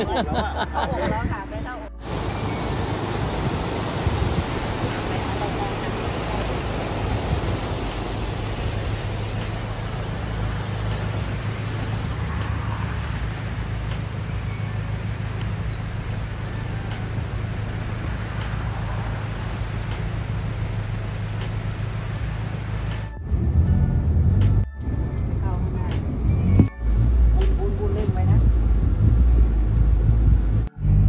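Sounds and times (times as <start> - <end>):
wind rumble on microphone: 0.3 - 31.0
river rushing in flood: 2.0 - 23.1.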